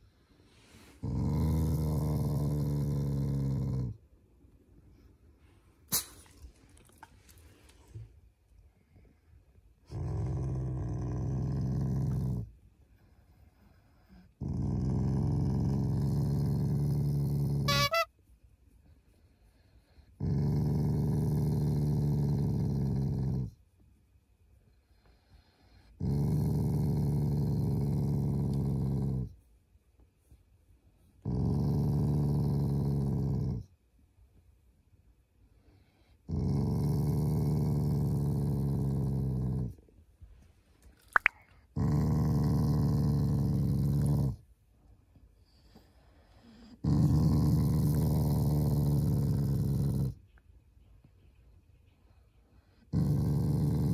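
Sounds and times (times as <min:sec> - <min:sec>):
dog growling: 0:01.0 - 0:04.0, 0:09.8 - 0:12.5, 0:14.0 - 0:18.1, 0:20.2 - 0:23.6, 0:25.9 - 0:29.3, 0:31.2 - 0:33.7, 0:36.2 - 0:39.8, 0:41.1 - 0:44.4, 0:46.4 - 0:50.2, 0:52.7 - 0:53.9.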